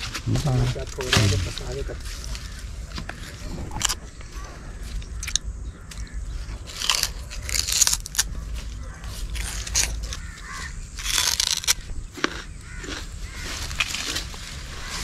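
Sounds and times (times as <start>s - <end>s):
chewing sugarcane: 0.0s - 15.0s
rind tearing with teeth: 6.0s - 14.6s.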